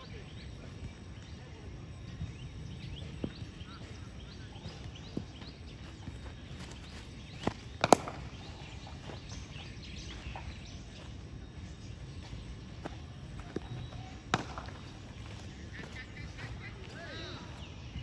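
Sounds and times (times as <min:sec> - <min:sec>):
cricket ball bouncing: 0:06.6 - 0:10.6, 0:12.2 - 0:16.6
bat striking ball: 0:07.7 - 0:08.8, 0:13.5 - 0:16.0.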